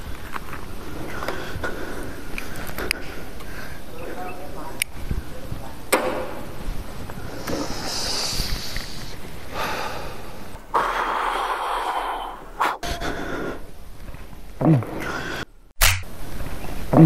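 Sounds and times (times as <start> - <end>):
man breathing out smoke: 7.3 - 13.6.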